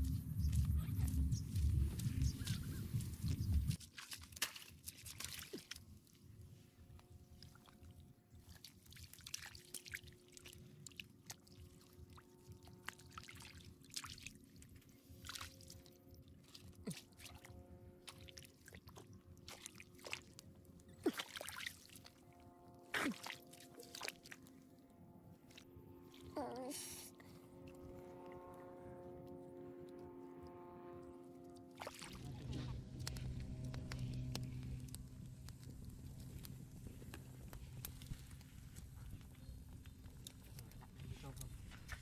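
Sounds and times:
hands splashing in muddy puddle: 3.2 - 5.8, 21.0 - 22.1, 23.0 - 24.4, 31.8 - 34.6.

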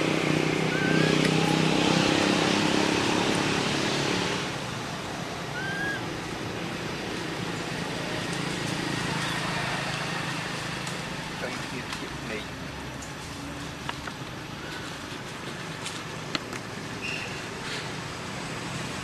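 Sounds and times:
vehicle engine humming: 0.0 - 19.0
high rising chirp: 0.6 - 2.1, 5.5 - 6.0.

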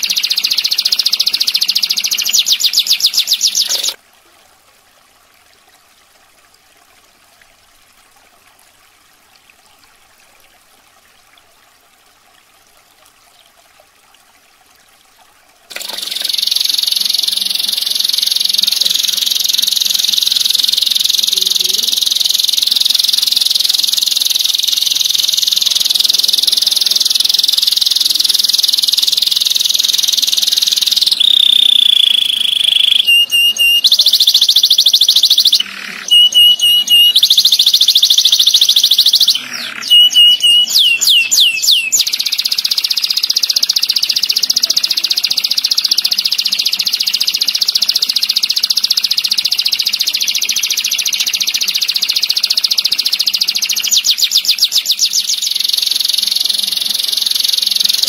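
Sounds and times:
canary singing trills: 0.0 - 4.0, 15.8 - 58.0.

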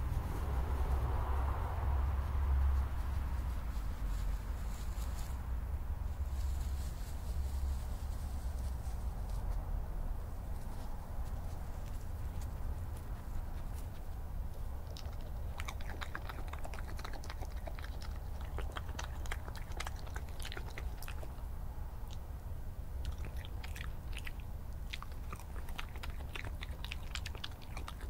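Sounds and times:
steady low hum: 0.0 - 28.0
badger crunching and chewing: 11.2 - 28.0.

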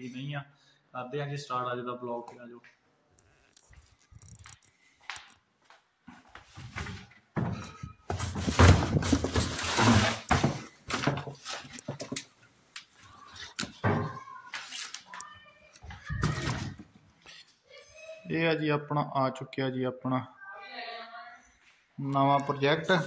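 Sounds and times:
cardboard box and paper rustling: 8.1 - 12.1.

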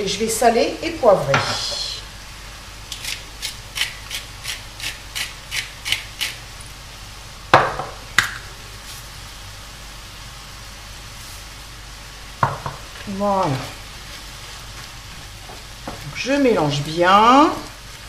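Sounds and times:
pepper mill grinding: 2.9 - 6.5.

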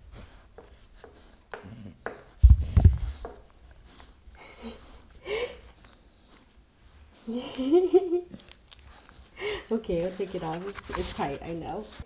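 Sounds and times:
light rustling: 8.4 - 12.0.

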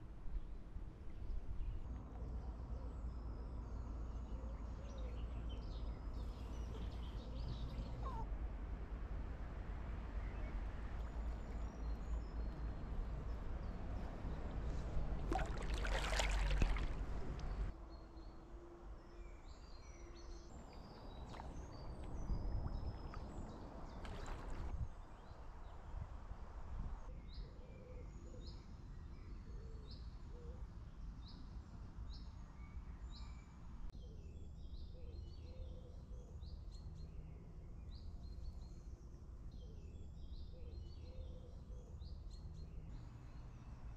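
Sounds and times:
kayak paddle splashing in water: 15.2 - 17.7, 20.6 - 24.8
wind rumbling on microphone: 20.6 - 27.4.

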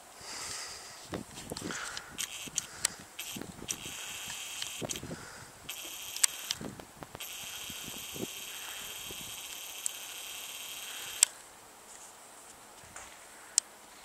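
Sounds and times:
camcorder zoom motor whine: 2.2 - 5.1, 5.7 - 11.4.

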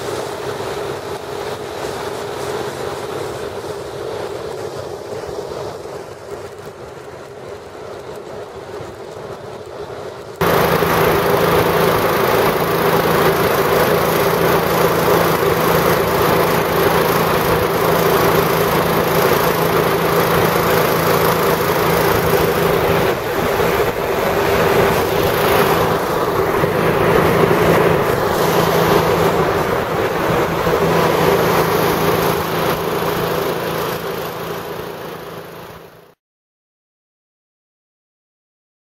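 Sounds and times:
hovercraft engine droning: 0.0 - 36.2
wind: 0.0 - 36.2
water noise: 10.4 - 36.0.

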